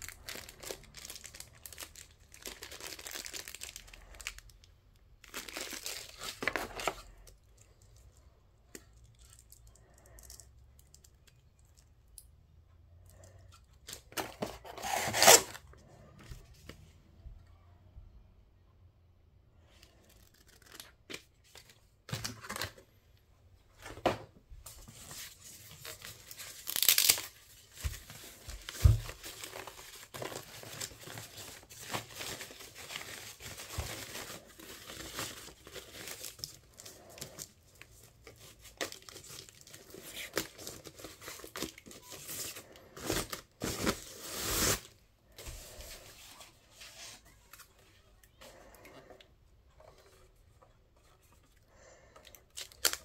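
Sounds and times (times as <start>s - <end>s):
plastic wrap rustling and crinkling: 0.0s - 8.1s, 13.8s - 15.6s, 23.8s - 48.6s, 52.5s - 53.0s
plastic ripping: 14.1s - 15.6s, 25.8s - 27.4s, 52.5s - 53.0s.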